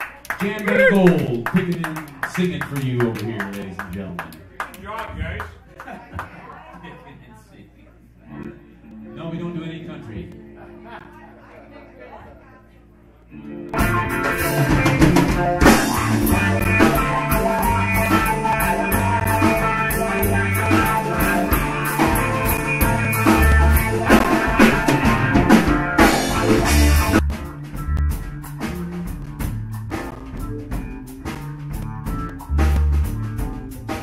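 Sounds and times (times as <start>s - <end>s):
electric guitar: 8.3s - 34.0s
bass guitar: 13.0s - 34.0s
drum kit: 13.7s - 34.0s.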